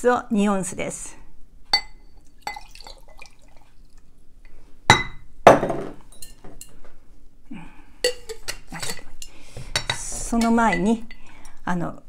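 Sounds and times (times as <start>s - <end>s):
glassware being handled: 1.8s - 3.3s, 4.9s - 6.8s, 8.0s - 11.2s
liquid poured from a glass pitcher: 2.3s - 4.2s.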